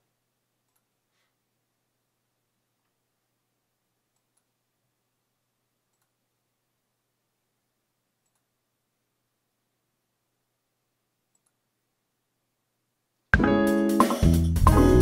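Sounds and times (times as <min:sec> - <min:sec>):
computer mouse clicks: 0:00.6 - 0:01.0, 0:04.1 - 0:04.6, 0:05.9 - 0:06.2, 0:08.2 - 0:08.5, 0:11.3 - 0:11.7.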